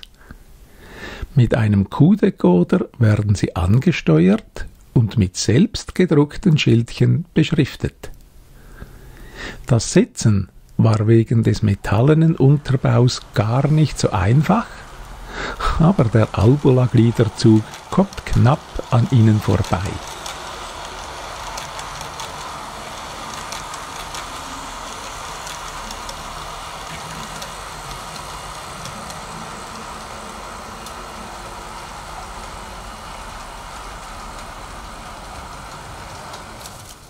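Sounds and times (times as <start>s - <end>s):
model train motor whirring: 11.6s - 37.0s.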